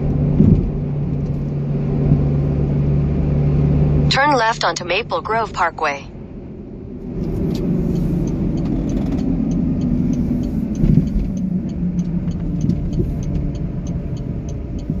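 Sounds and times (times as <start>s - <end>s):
car engine and tyre rumble: 0.0s - 15.0s
turn signal ticking: 3.6s - 15.0s.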